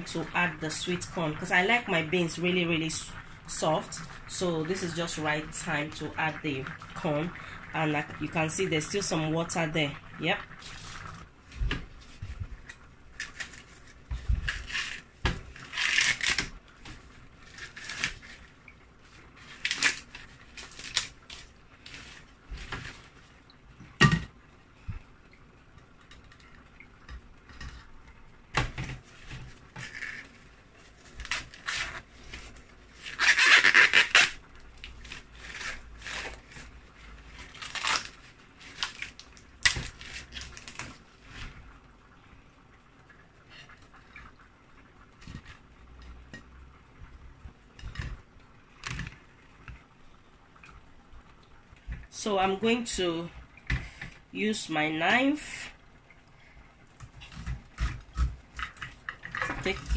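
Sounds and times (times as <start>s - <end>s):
corn husks tearing and rustling: 14.4s - 16.5s, 33.0s - 41.0s.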